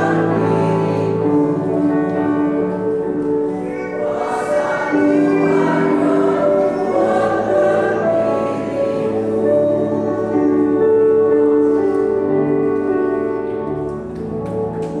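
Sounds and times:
choir singing a slow hymn: 0:00.0 - 0:11.9.

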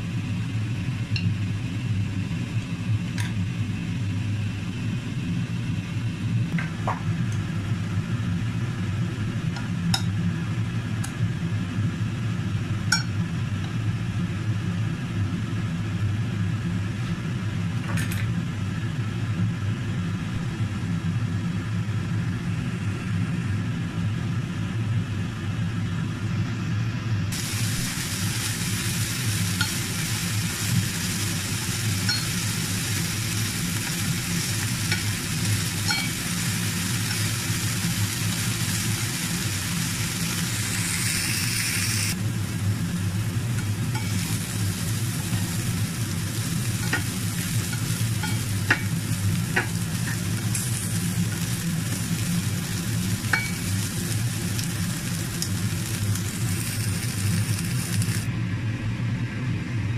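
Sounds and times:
steady low hum: 0:00.0 - 0:59.9
prawns sizzling in frying pan: 0:27.3 - 0:58.3.

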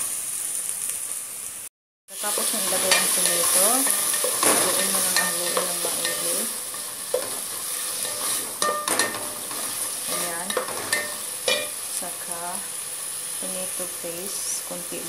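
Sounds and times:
frying sizzle in hot oil: 0:00.0 - 0:15.0
wooden spoon scraping metal pot: 0:02.6 - 0:11.7.

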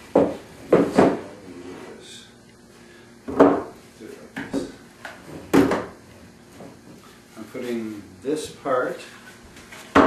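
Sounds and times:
wooden boards knocking and clattering: 0:00.1 - 0:01.3, 0:03.3 - 0:03.7, 0:05.5 - 0:06.0.

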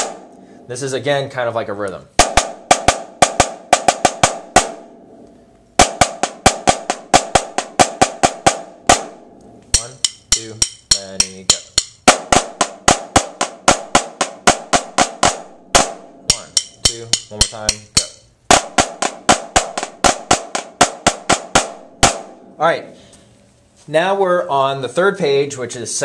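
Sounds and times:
snare drum strokes and rolls: 0:00.0 - 0:00.4, 0:02.2 - 0:04.9, 0:05.8 - 0:09.2, 0:09.8 - 0:22.4.

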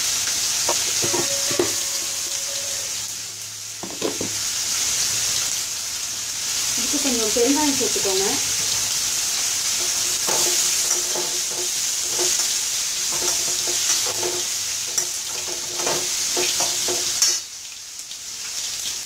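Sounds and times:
oil sizzling: 0:00.0 - 0:19.0
spatula scraping metal pan: 0:00.7 - 0:03.0, 0:09.7 - 0:17.4.

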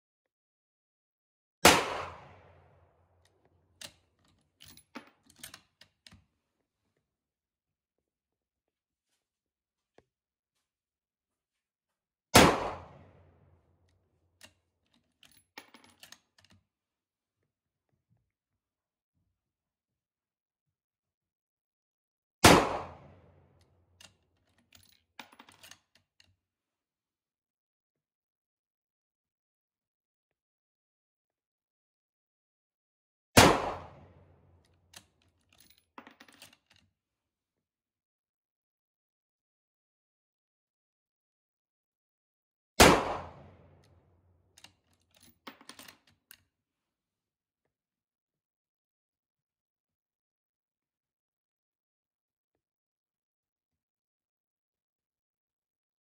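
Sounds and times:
rifle shot: 0:01.6 - 0:02.6, 0:12.4 - 0:13.3, 0:22.4 - 0:23.2, 0:33.4 - 0:34.1, 0:42.8 - 0:43.7.

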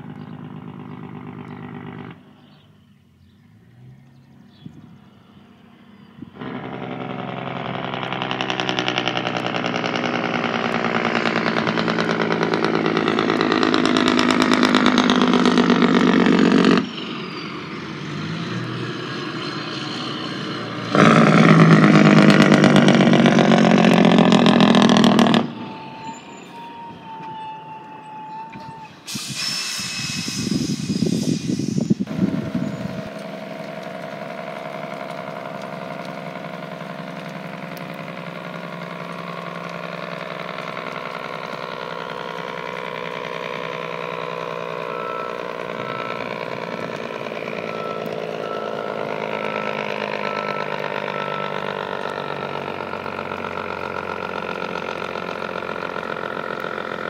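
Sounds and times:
truck engine brake rattling: 0:06.4 - 0:17.0.

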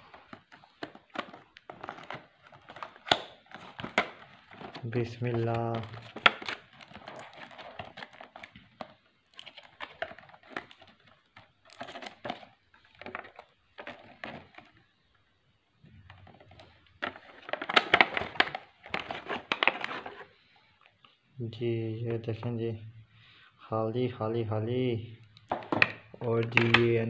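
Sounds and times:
plastic packaging crackling: 0:00.0 - 0:14.9, 0:16.0 - 0:20.4.

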